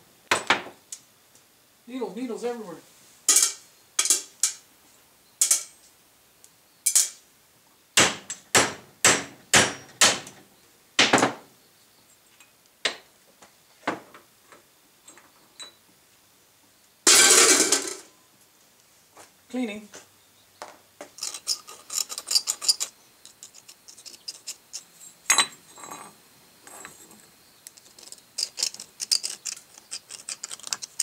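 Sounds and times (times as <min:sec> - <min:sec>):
scraping rattle: 0:21.1 - 0:31.0.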